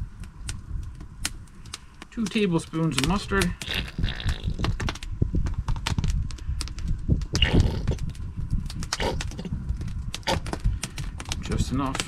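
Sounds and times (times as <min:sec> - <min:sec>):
low rumble: 0:03.5 - 0:12.0.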